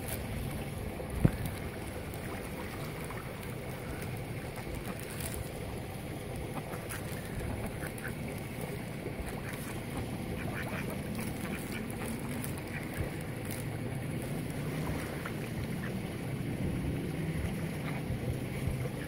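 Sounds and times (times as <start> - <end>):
ducks quacking: 6.4 - 14.2.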